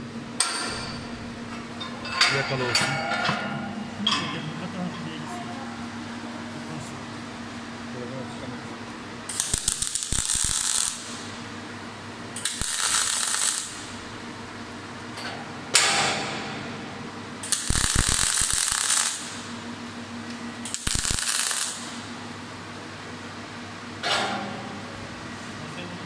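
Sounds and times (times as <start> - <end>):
welding arc crackling: 9.3 - 11.5, 12.4 - 14.2, 17.4 - 19.7, 20.6 - 22.2.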